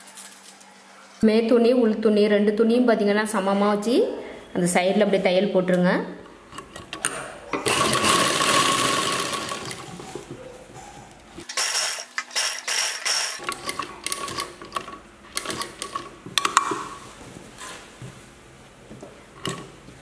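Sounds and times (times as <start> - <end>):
sewing machine stitching: 6.7 - 10.2
sewing machine mechanism clicks: 11.5 - 16.6.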